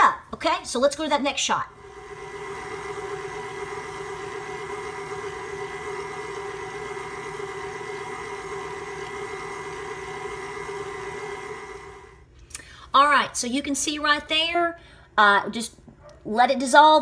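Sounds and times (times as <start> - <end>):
stand mixer motor hum: 1.7 - 12.3.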